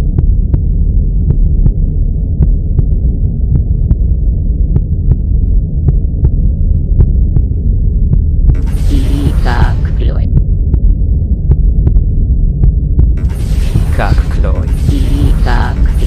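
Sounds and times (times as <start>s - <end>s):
muffled low throbbing drone: 0.0s - 16.0s.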